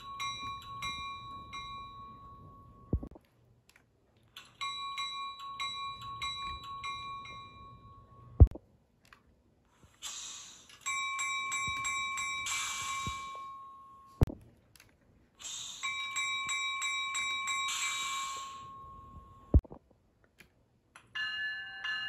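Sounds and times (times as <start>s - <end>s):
locomotive bell ringing: 0.0s - 3.0s, 4.6s - 8.4s, 21.1s - 22.0s.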